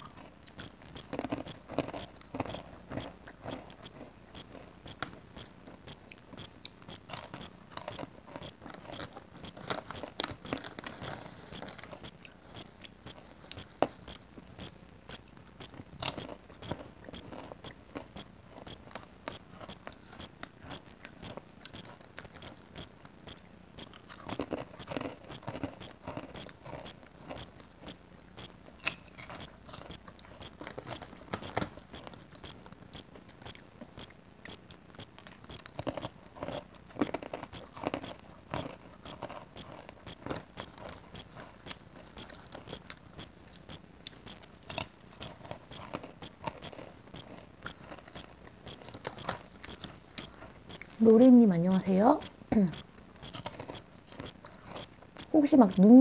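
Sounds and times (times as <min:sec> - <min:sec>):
crunchy popcorn chewing: 0:00.0 - 0:56.0
mouth sounds: 0:45.3 - 0:56.0.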